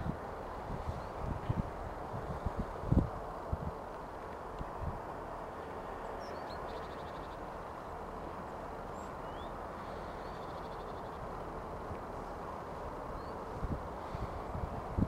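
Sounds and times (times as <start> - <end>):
steady low rumble: 0.0 - 15.0
small birds chirping: 6.0 - 7.5, 8.4 - 11.3.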